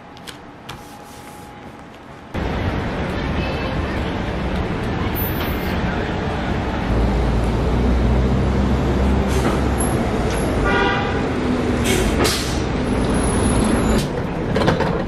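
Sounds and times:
bus engine rumble: 1.2 - 15.0
air brake hiss: 9.2 - 9.6, 11.8 - 12.7.

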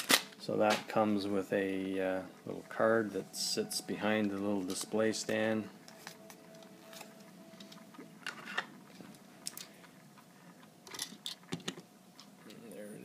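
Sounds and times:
faint steady hum: 0.0 - 13.0
small objects clicking and tapping: 7.6 - 10.0.

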